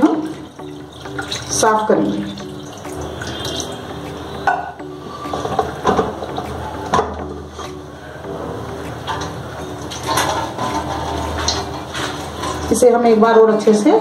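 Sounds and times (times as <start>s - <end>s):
water pouring onto curds: 0.0s - 3.9s, 9.8s - 12.8s
steel vessels clinking: 9.0s - 12.8s.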